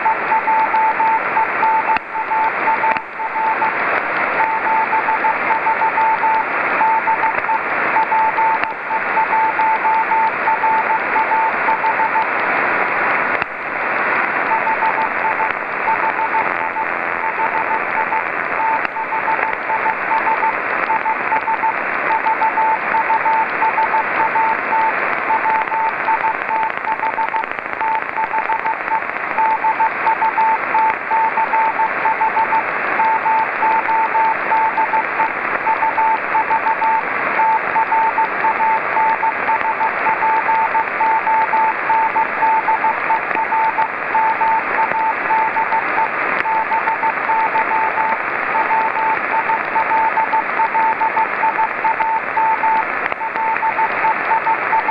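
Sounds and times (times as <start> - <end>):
morse code beeping tone: 0.0 - 3.7, 4.4 - 12.3, 14.5 - 54.9
receiver hiss: 0.0 - 54.9.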